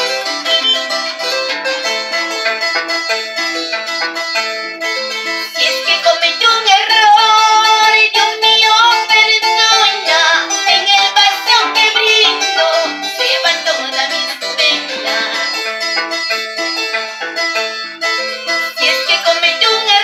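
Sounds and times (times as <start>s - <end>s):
woman singing: 0.0s - 1.8s, 5.3s - 15.7s, 18.3s - 20.0s
harp plucked melody: 0.0s - 20.0s.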